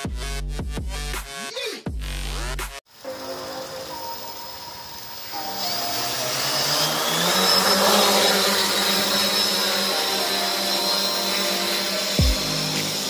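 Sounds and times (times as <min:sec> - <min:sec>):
drone motors whining: 0:03.0 - 0:13.0.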